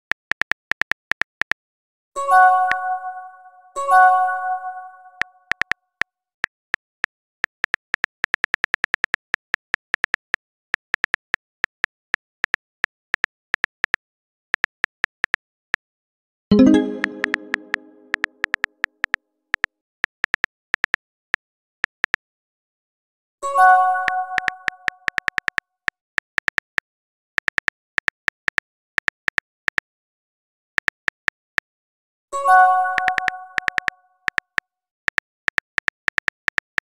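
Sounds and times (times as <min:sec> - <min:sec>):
message chime: 0:16.5 - 0:18.3
smartphone keyboard taps: 0:16.9 - 0:18.7, 0:25.1 - 0:25.6, 0:33.0 - 0:34.4
phone keyboard tap clicks: 0:33.0 - 0:34.4.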